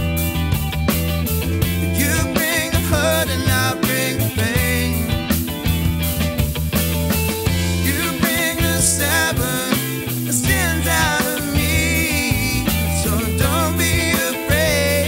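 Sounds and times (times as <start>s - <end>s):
soul-funk band playing live: 0.0s - 15.0s
strong bass notes: 0.0s - 15.0s
person singing with sliding pitch: 1.7s - 5.4s, 7.6s - 15.0s.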